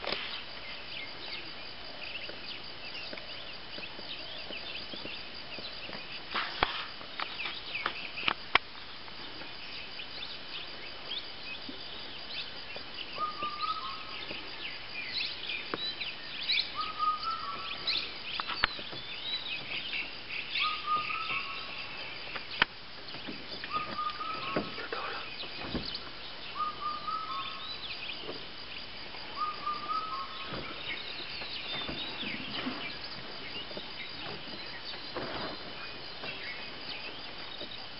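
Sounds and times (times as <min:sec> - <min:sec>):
birds chirping: 0:00.4 - 0:37.9.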